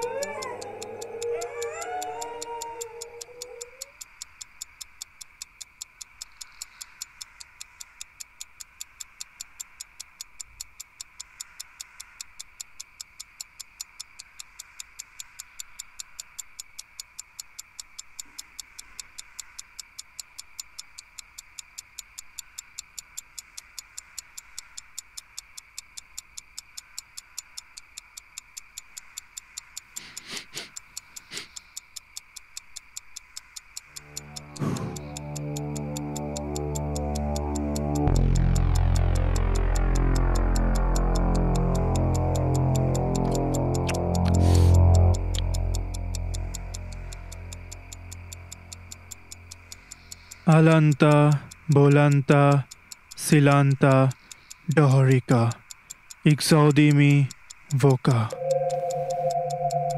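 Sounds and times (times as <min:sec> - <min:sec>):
clock ticking: 0:00.0 - 0:59.9.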